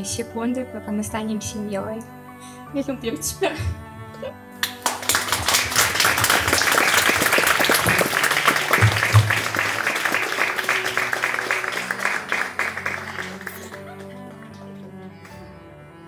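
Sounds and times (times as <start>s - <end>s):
soft background music: 0.0s - 16.0s
crowd applauding: 4.6s - 15.5s.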